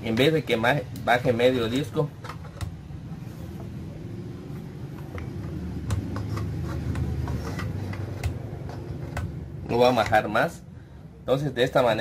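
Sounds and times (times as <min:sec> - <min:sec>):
steady low rumble: 0:02.7 - 0:11.3.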